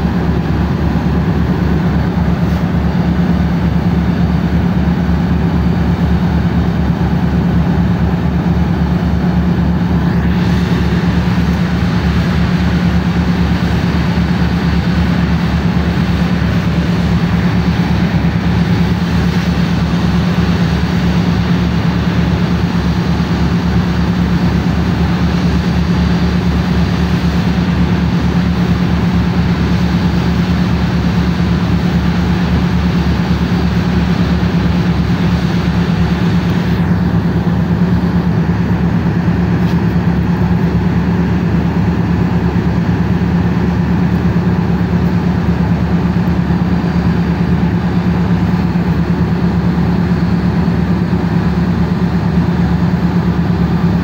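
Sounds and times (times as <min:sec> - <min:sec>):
tugboat diesel engine droning: 0:00.0 - 0:54.0.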